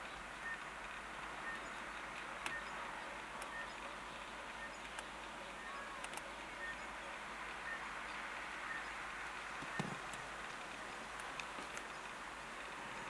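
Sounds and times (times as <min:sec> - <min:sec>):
steady outdoor hiss: 0:00.0 - 0:13.0
sharp clicks: 0:00.4 - 0:03.9, 0:04.5 - 0:06.8, 0:09.6 - 0:12.8.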